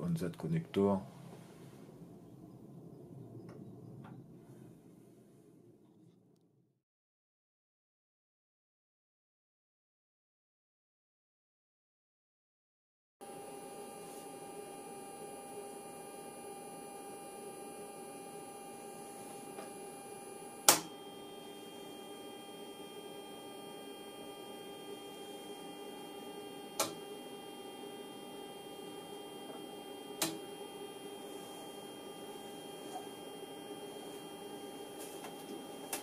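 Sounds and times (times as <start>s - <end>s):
electrical hum of test equipment: 0.0s - 5.9s, 13.2s - 36.0s.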